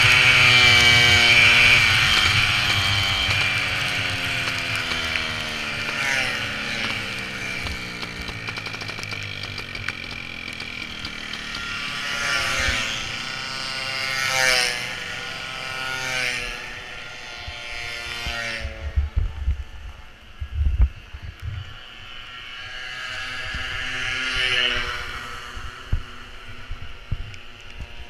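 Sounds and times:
mopeds whining past: 0:00.0 - 0:19.0, 0:21.7 - 0:28.0
moped engine whine: 0:00.0 - 0:28.0.

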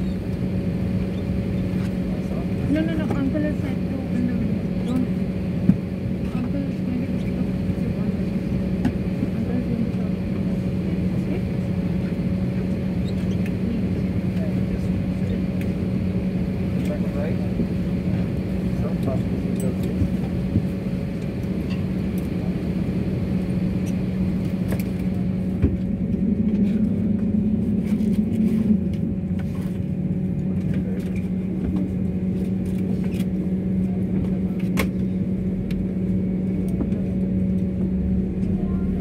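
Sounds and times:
airliner cabin rumble: 0:00.0 - 0:39.0.

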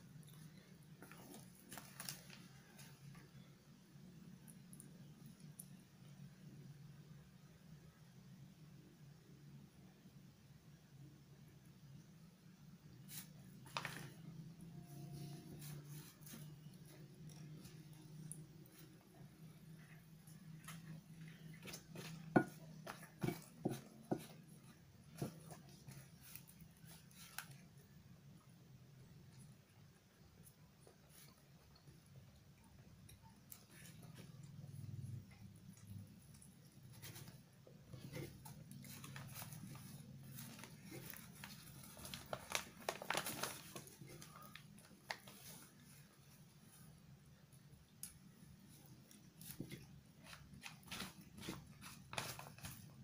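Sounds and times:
low steady hum: 0:00.0 - 0:53.0
paper rustling: 0:13.1 - 0:14.3, 0:36.9 - 0:46.1, 0:49.4 - 0:53.0
spoon scraping and tapping rice: 0:20.7 - 0:24.6.

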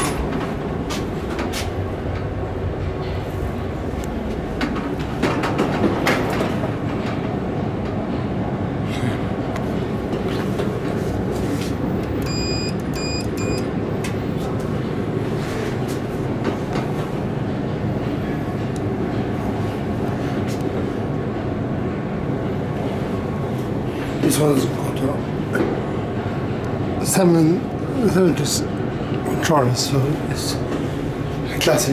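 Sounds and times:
subway station rumble and hiss: 0:00.0 - 0:31.9
short electronic beeps: 0:12.2 - 0:13.7.

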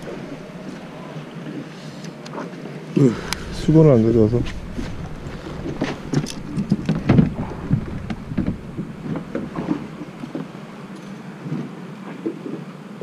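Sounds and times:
low rumble: 0:00.0 - 0:01.6, 0:03.0 - 0:11.0
irregular knocks and clatter: 0:03.2 - 0:11.2.

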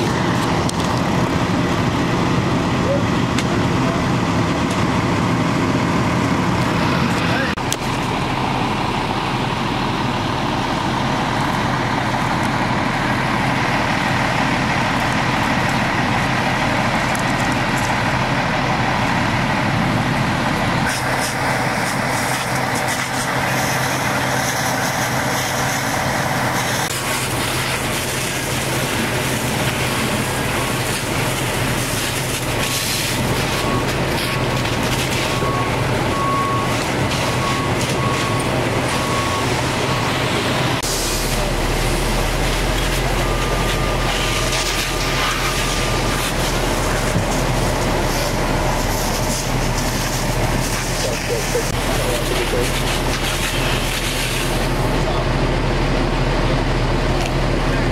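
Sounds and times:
fire engine running: 0:00.0 - 0:57.9
hose stream hissing: 0:38.1 - 0:55.0.

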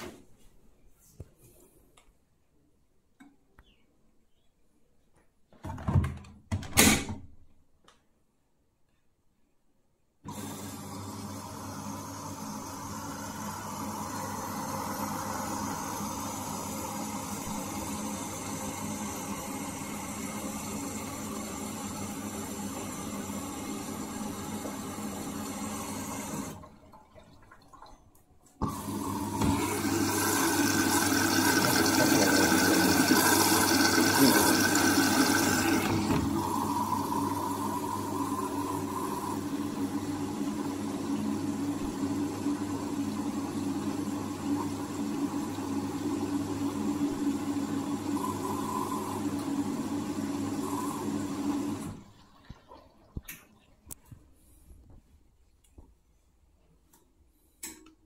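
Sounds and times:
washing machine hum: 0:10.2 - 0:55.8
water rushing into washing machine: 0:10.3 - 0:54.1.

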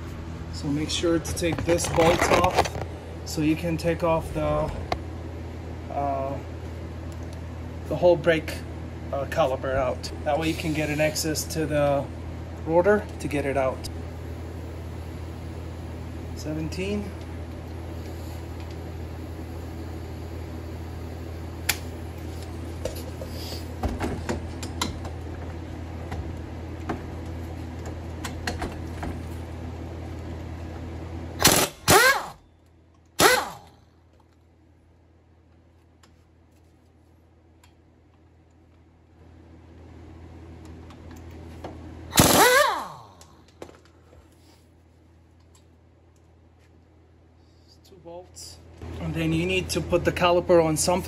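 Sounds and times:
pneumatic impact wrench: 0:31.4 - 0:32.4, 0:33.2 - 0:33.8, 0:42.1 - 0:43.2.

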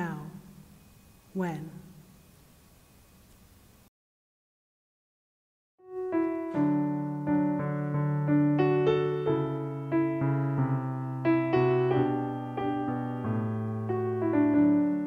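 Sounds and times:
acoustic guitar plucked notes: 0:05.9 - 0:08.6.

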